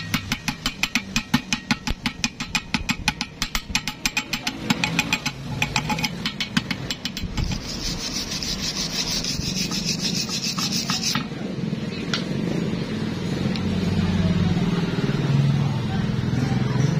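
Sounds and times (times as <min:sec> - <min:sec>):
chipping hammer tapping steel: 0:00.0 - 0:07.6
wire brush scrubbing metal: 0:03.8 - 0:11.3.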